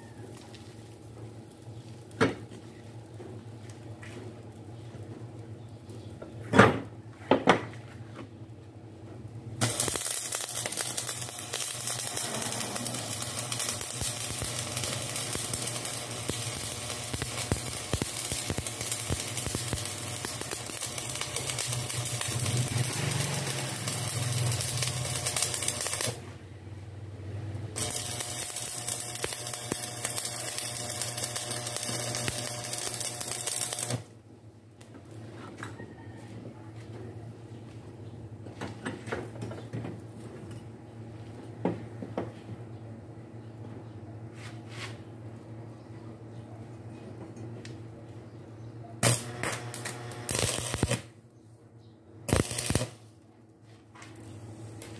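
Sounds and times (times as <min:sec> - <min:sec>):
welding arc crackling: 0:09.6 - 0:26.3, 0:27.7 - 0:34.1, 0:49.0 - 0:51.2, 0:52.3 - 0:53.2.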